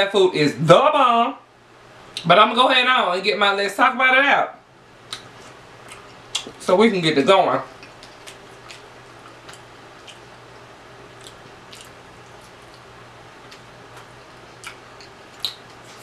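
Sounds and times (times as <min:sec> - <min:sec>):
faint steady hum: 0:00.0 - 0:16.0
wet eating clicks and lip smacks: 0:05.1 - 0:06.6, 0:07.8 - 0:10.3, 0:11.2 - 0:16.0.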